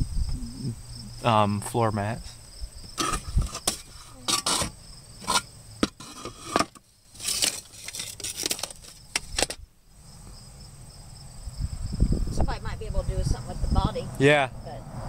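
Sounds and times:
crickets chirping: 0.0s - 15.0s
metal parts knocking and scraping: 3.0s - 9.6s.

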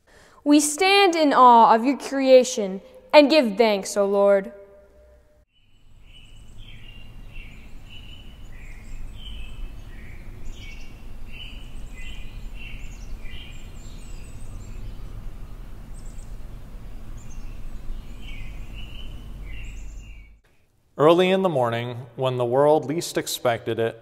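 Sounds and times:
songbirds chirping: 5.5s - 20.4s
low outdoor rumble: 5.7s - 20.4s.

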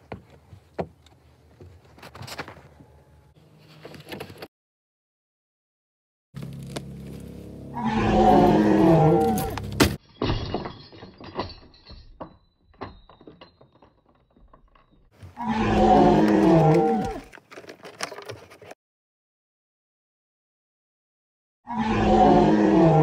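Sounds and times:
loud groaning call: 7.7s - 9.6s, 15.4s - 17.2s, 21.7s - 23.0s
small objects rattling on wood: 9.5s - 18.8s.

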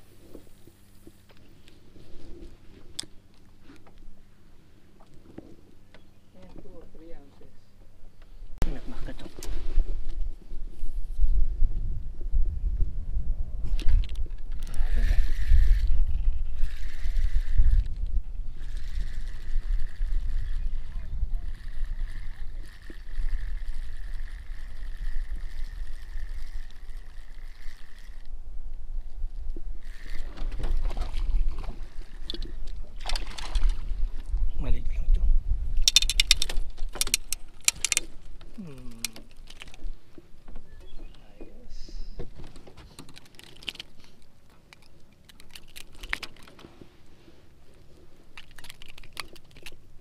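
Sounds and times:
wind rumble on microphone: 8.4s - 37.0s
light clicks and rattles: 35.8s - 46.9s, 47.8s - 49.9s.

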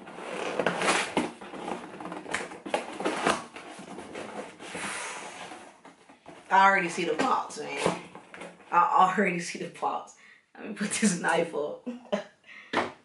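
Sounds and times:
cardboard box tape crackling: 0.0s - 6.6s
cardboard rustle: 0.0s - 6.6s.

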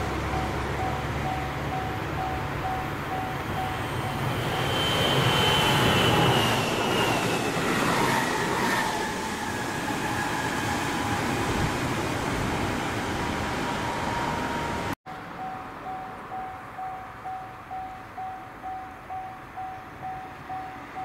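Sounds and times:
level crossing warning bell: 0.0s - 4.7s, 13.8s - 21.0s
electric train passing: 0.0s - 21.0s.

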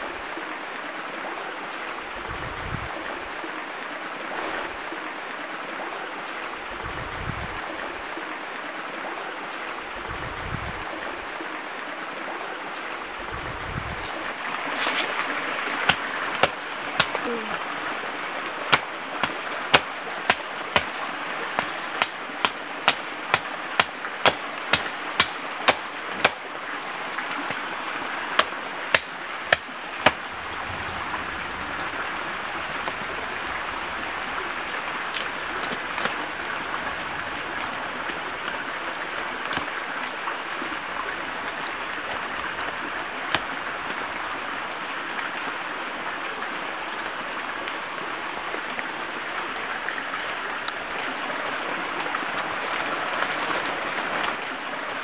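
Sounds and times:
river flowing: 0.0s - 55.0s
sharp knocks: 15.9s - 17.3s, 18.7s - 21.0s, 21.6s - 26.4s, 28.4s - 30.2s.

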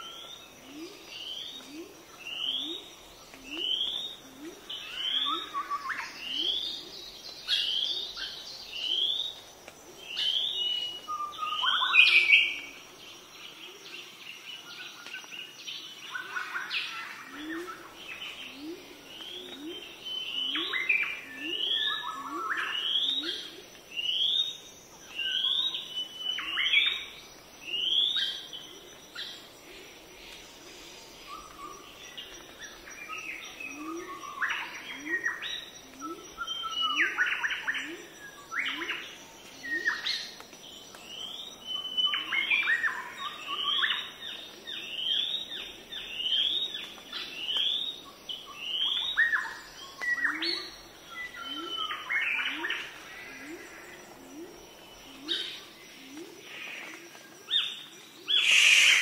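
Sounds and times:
birds chirping: 15.8s - 59.0s.

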